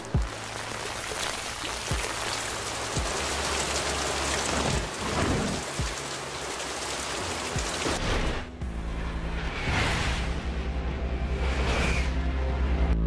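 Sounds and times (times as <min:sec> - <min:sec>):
dense rain-like hiss: 0:00.0 - 0:08.0.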